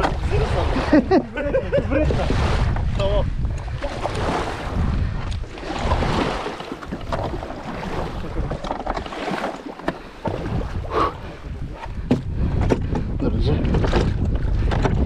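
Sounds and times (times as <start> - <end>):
sea water splashing: 0.0 - 12.5
wind buffeting microphone: 0.0 - 15.0
sharp knocks: 12.1 - 13.1.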